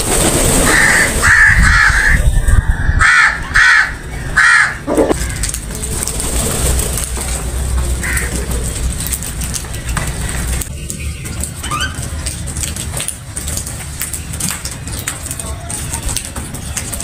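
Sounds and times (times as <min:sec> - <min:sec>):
crows cawing: 0:00.6 - 0:05.6, 0:08.0 - 0:08.5.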